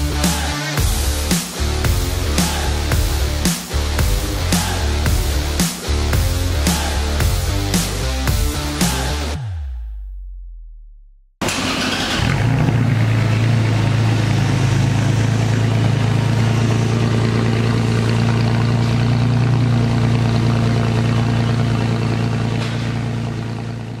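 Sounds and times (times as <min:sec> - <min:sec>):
truck exhaust idling: 0:11.5 - 0:24.0.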